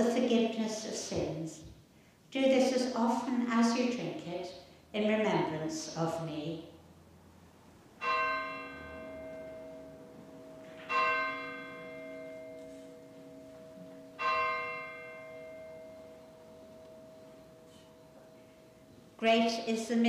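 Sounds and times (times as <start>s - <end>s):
bell ringing: 8.0s - 19.4s.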